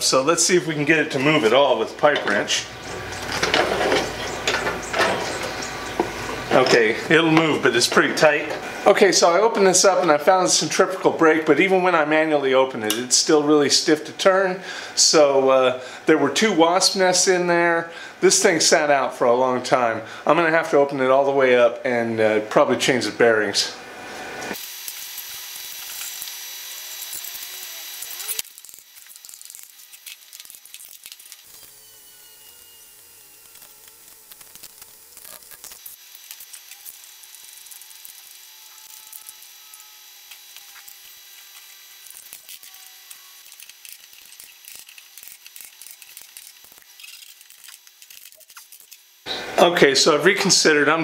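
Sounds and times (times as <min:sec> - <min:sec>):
cordless drill whirring: 0:24.6 - 0:28.5, 0:36.7 - 0:47.0
metal parts clicking and knocking: 0:38.8 - 0:49.0.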